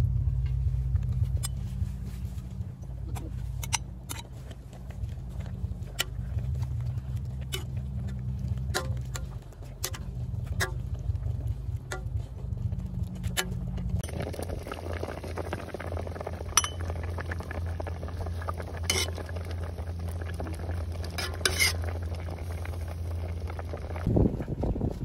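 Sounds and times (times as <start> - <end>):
steady low rumble: 0.0 - 25.0
ladle clinking against metal pot: 16.6 - 16.8.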